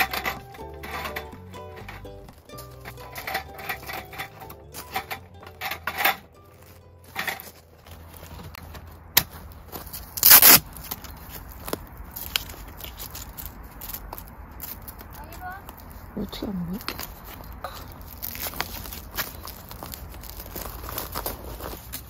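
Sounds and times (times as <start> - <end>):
metal table slats rattling: 0.0 - 2.0, 2.8 - 6.4
velcro strap ripping: 10.2 - 10.6.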